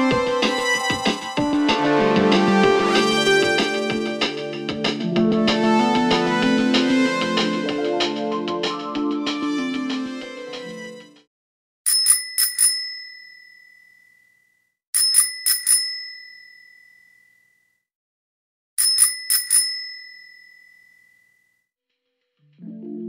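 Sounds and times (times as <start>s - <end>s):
small bell dinging: 11.9s - 17.8s, 18.8s - 21.6s.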